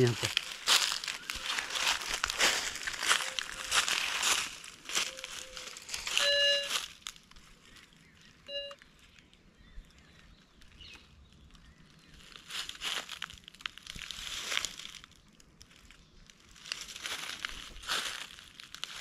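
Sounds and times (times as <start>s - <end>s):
footsteps crunching through leaves: 0.0s - 8.0s, 11.8s - 15.2s, 16.4s - 19.0s
metal detector buzzy beep: 5.1s - 6.8s, 8.5s - 8.8s.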